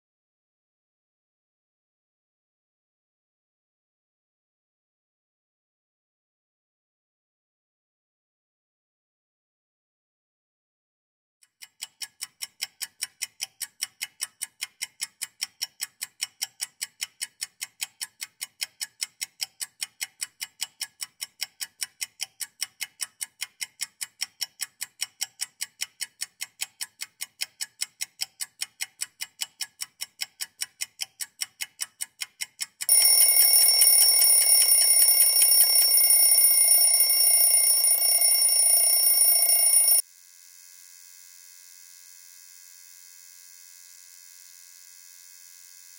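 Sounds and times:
clock ticking fast: 0:11.6 - 0:40.0
alarm ringing: 0:32.9 - 0:40.0.

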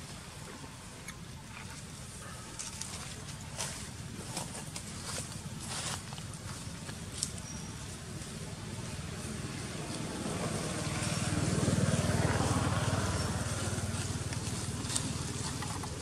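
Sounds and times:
passing vehicle engine hum: 0:04.7 - 0:16.0.

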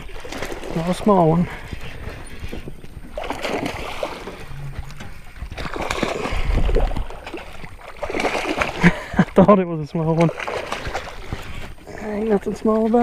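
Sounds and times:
fish splashing at water surface: 0:05.6 - 0:09.3, 0:10.1 - 0:11.6.

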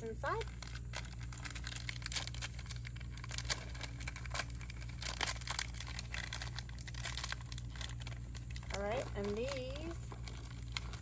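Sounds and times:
steady low hum: 0:00.0 - 0:11.0
wrapper crinkling and tearing: 0:00.0 - 0:11.0.

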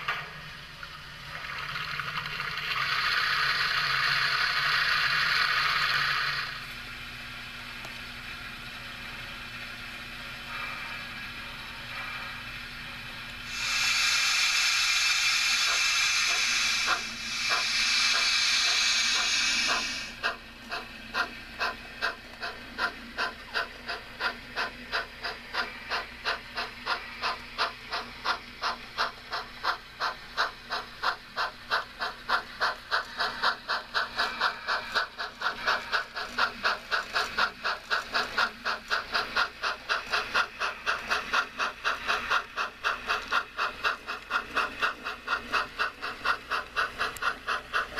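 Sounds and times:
steam locomotive exhaust chuffs: 0:00.0 - 0:47.9
hiss of released steam: 0:02.9 - 0:06.6, 0:13.4 - 0:20.3.

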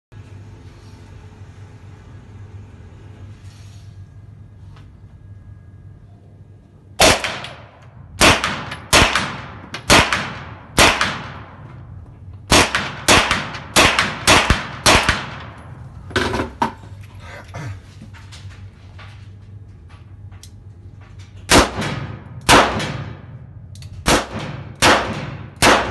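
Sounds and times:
rifle shots echoing indoors: 0:07.0 - 0:15.7, 0:21.5 - 0:25.9.

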